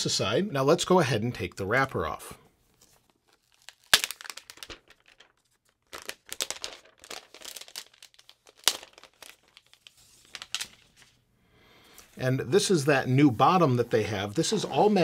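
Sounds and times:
plastic wrap crinkling: 0:02.7 - 0:11.3, 0:12.0 - 0:15.0
plastic wrap snapping: 0:03.3 - 0:11.1.

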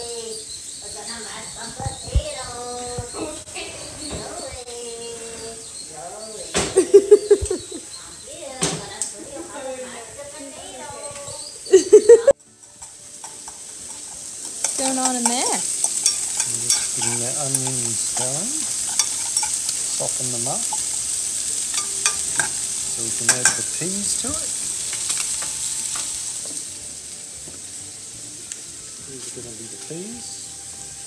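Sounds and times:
food sizzling in pans: 0:00.0 - 0:31.0
metal utensil scraping saucepan: 0:12.8 - 0:26.2.

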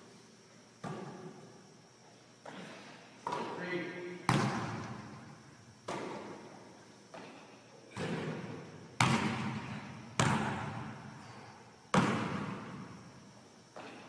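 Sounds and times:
echo through gym: 0:00.0 - 0:14.0
basketball hitting hard surfaces: 0:00.8 - 0:01.4, 0:04.3 - 0:05.2, 0:05.9 - 0:06.5, 0:07.9 - 0:11.1, 0:11.9 - 0:13.0.

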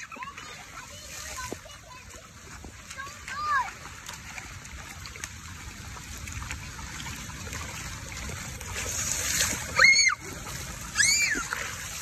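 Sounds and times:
rain falling on wet ground: 0:00.6 - 0:12.0.

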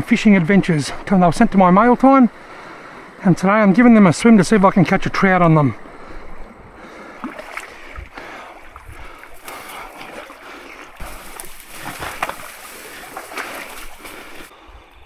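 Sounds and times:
dry grass rustling and crackling: 0:08.6 - 0:14.5
footsteps: 0:08.7 - 0:14.5.

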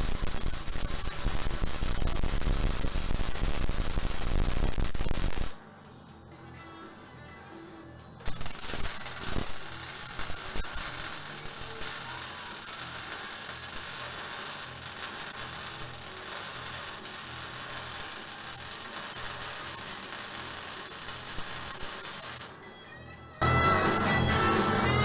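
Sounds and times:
arc welding sizzling hiss: 0:00.0 - 0:05.6, 0:08.2 - 0:22.5
music: 0:00.0 - 0:25.0.

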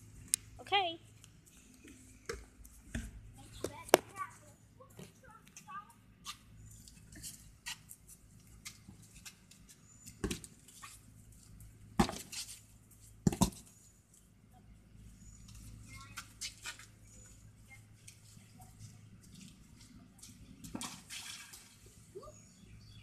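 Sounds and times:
sharp taps and knocks: 0:02.2 - 0:04.3.

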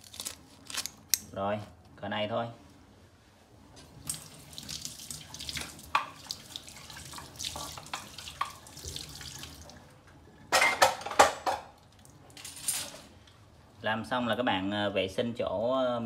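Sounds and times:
tap water splashing in sink: 0:04.0 - 0:09.9.

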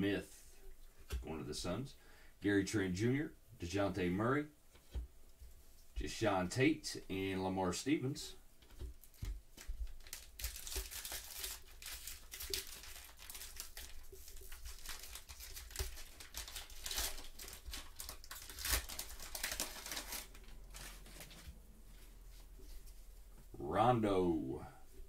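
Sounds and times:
plastic wrapper tearing and crinkling: 0:09.0 - 0:21.6.

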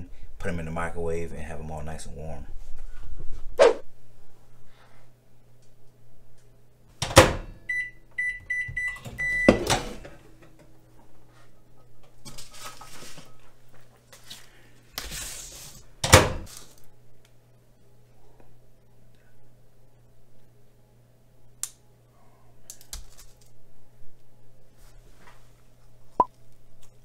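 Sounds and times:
microwave humming: 0:05.5 - 0:13.7, 0:15.8 - 0:18.0
microwave door clunking shut: 0:07.0 - 0:07.6, 0:08.7 - 0:10.5, 0:16.0 - 0:16.5
keypad beeps: 0:07.7 - 0:09.6.

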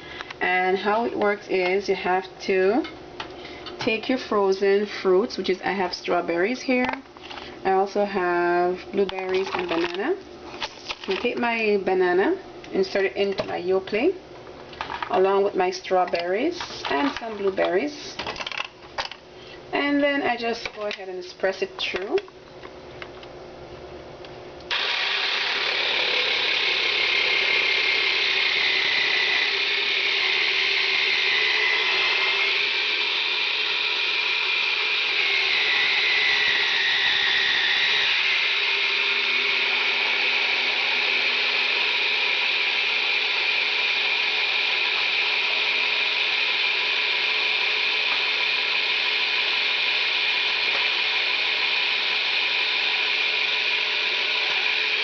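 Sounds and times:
dessert maker motor whine: 0:24.7 - 0:55.0.

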